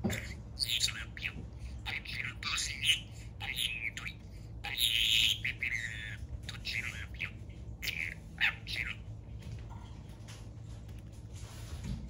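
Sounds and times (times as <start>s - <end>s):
budgerigar chirping and squawking: 0.0s - 9.2s.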